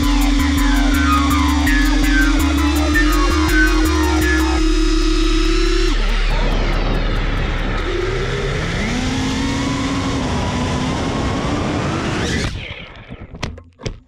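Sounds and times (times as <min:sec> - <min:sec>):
drone crashing and tumbling knocks: 0:00.0 - 0:09.2
drone motors whining: 0:00.0 - 0:13.4.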